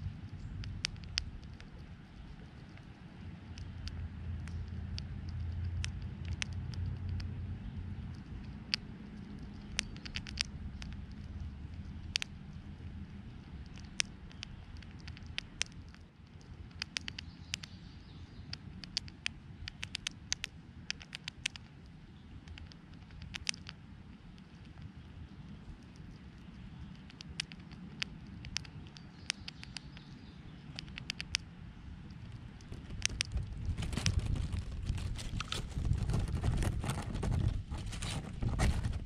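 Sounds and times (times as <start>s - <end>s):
low rumble: 0.0s - 15.8s, 31.8s - 39.0s
chipmunk chewing seeds: 0.0s - 39.0s.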